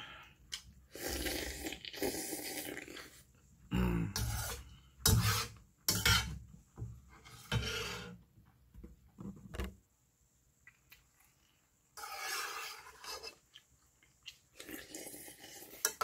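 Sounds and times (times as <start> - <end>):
metal spoon scraping a pot: 4.2 - 6.4, 7.2 - 8.2, 12.0 - 13.5.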